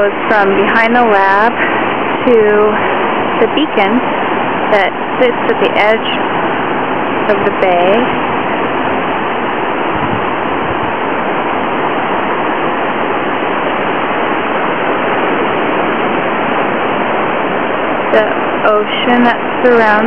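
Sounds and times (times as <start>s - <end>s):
steady seaside rushing: 0.0s - 20.0s.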